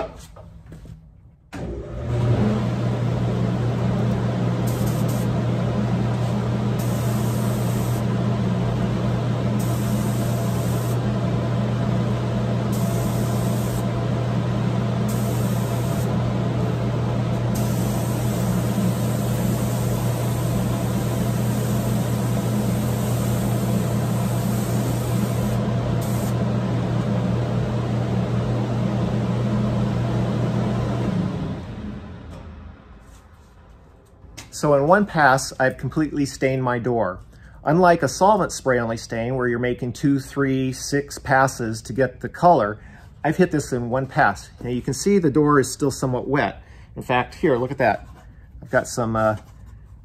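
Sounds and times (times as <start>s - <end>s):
fan humming: 1.5s - 35.4s
spray gun hissing: 4.7s - 5.4s, 6.8s - 8.1s, 9.6s - 11.1s, 12.7s - 13.9s, 15.1s - 16.2s, 17.5s - 26.4s.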